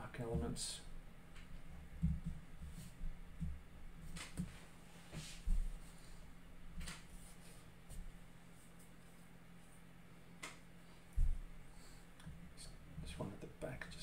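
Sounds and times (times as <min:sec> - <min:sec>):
soft low knocks: 0:01.9 - 0:03.7.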